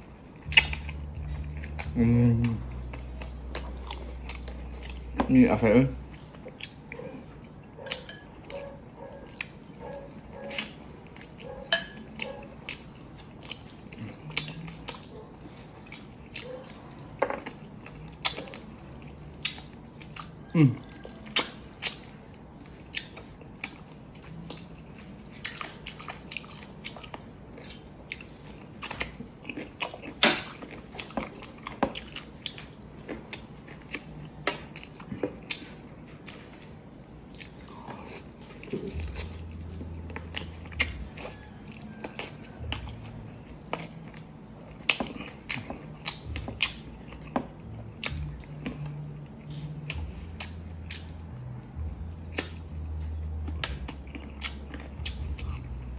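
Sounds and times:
low hum: 0.0s - 13.0s, 37.6s - 44.7s
mouth chewing meat: 0.0s - 55.9s.

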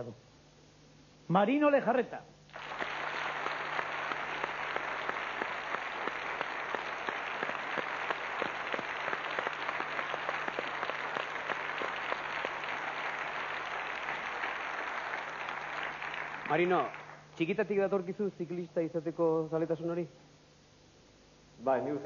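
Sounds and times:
audience applauding: 2.5s - 17.3s.

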